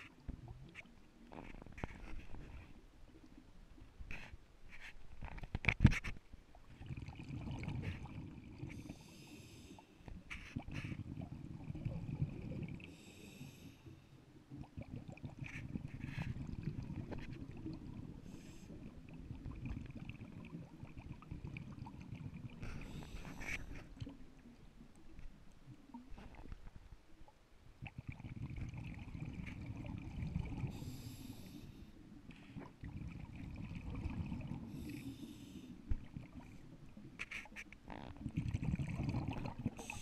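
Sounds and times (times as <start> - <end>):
exhaled bubbles rumbling: 6.6 - 8.8, 10.6 - 12.9, 14.4 - 26.8, 27.8 - 31.0, 32.5 - 34.8, 37.9 - 40.0.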